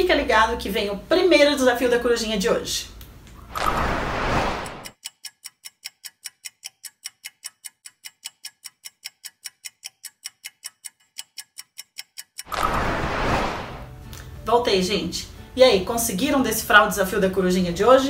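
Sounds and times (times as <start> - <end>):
brief rush of noise: 3.5 - 4.9, 12.5 - 14.0
high-pitched clock ticks: 4.8 - 12.6.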